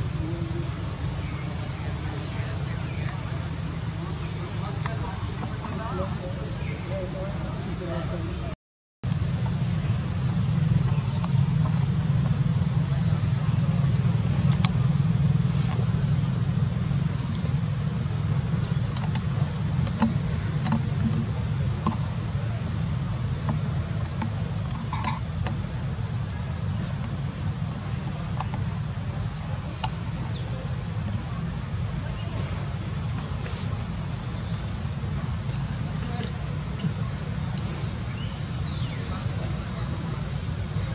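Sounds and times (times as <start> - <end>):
pulsing insect chorus: 0.0 - 40.9
steady low rumble: 9.1 - 40.9.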